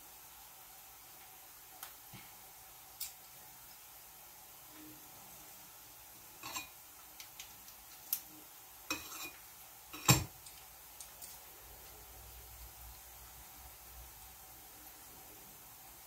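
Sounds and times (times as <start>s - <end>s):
onion sizzling in a pan: 0.0s - 16.0s
metal utensils knocking on wood: 10.0s - 10.3s.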